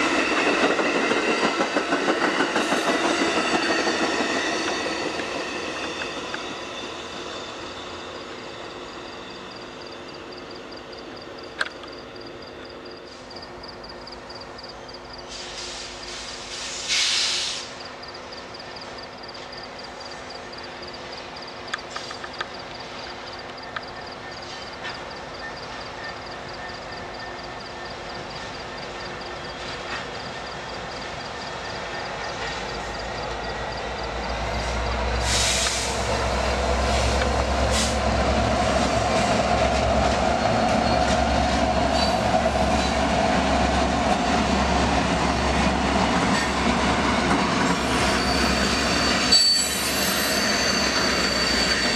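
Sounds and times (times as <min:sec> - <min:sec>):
distant diesel locomotives humming: 0:00.0 - 0:51.9
passenger train rumbling past: 0:00.0 - 0:51.9
loud air hiss: 0:15.3 - 0:17.8, 0:35.1 - 0:38.2.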